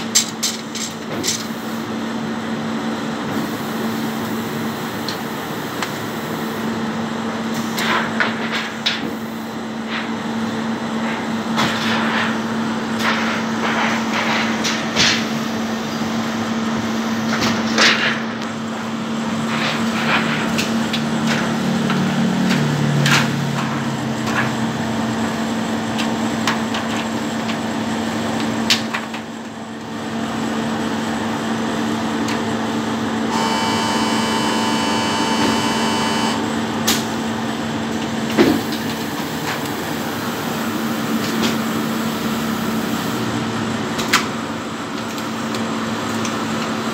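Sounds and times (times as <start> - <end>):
printing press humming: 0.0 - 46.9
high machine whine: 31.2 - 45.7.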